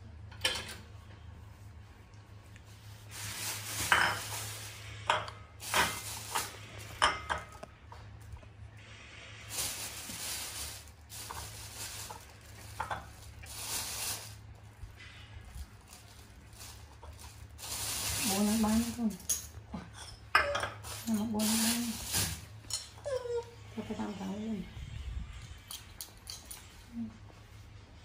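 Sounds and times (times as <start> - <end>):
plastic bag rustling: 2.7 - 7.6, 9.4 - 19.6, 20.8 - 22.8.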